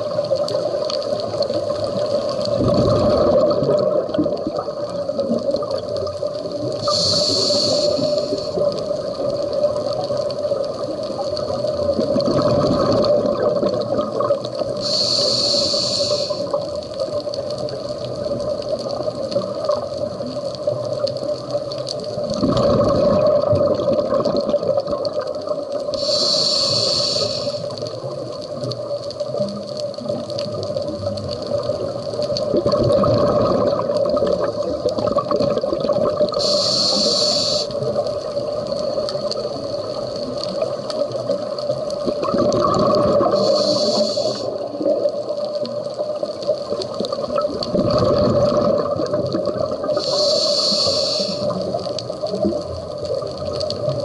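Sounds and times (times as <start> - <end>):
exhaled bubbles rumbling underwater: 0.0 - 54.0
regulator inhalation hiss: 6.6 - 9.0, 14.6 - 16.8, 25.9 - 28.1, 36.3 - 38.0, 43.2 - 44.8, 49.8 - 51.8
steady hum: 6.7 - 8.8, 14.8 - 16.6, 25.9 - 27.8, 36.3 - 37.8, 43.2 - 44.6, 50.0 - 51.6.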